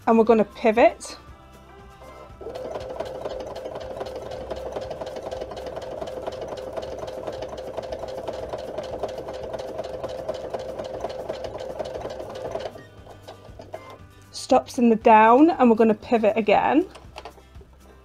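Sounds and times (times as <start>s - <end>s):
sewing machine stitching: 2.0s - 14.0s, 16.8s - 17.4s.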